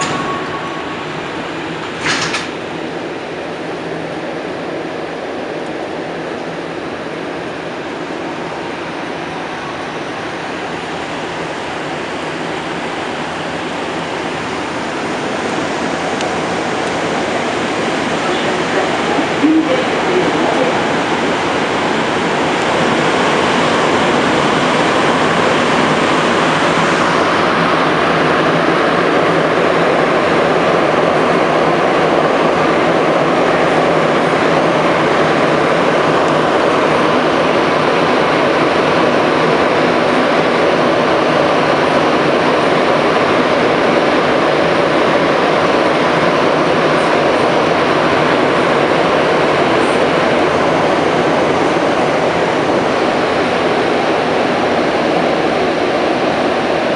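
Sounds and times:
train rushing through tunnel: 0.0s - 56.9s.

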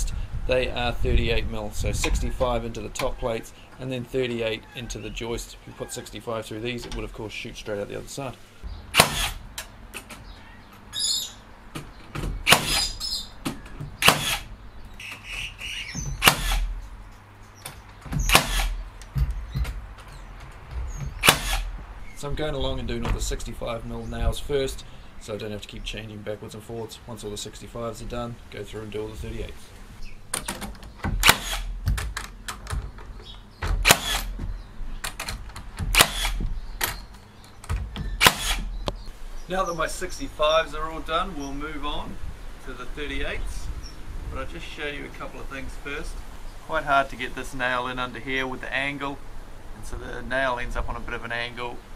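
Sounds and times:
nail gun firing: 8.9s - 9.4s, 12.4s - 13.0s, 14.0s - 14.5s, 16.2s - 16.7s, 18.1s - 18.8s, 21.2s - 21.7s, 31.0s - 32.3s, 33.7s - 34.4s, 35.0s - 37.0s, 37.6s - 38.7s.

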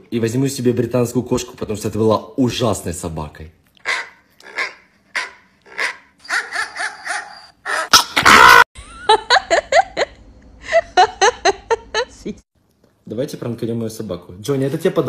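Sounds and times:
woman laughing: 8.8s - 12.4s.

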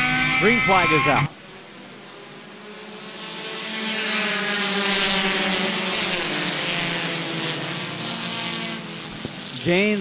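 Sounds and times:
race car engines at full throttle: 0.0s - 10.0s.

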